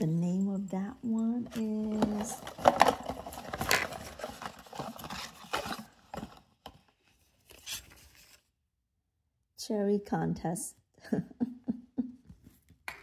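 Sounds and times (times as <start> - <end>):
paper and packaging rustling: 1.1 - 8.5.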